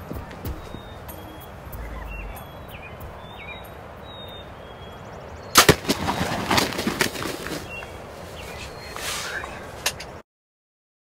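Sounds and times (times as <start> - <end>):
bow shot cracks: 5.6 - 6.2
bird wings flapping: 5.6 - 10.1.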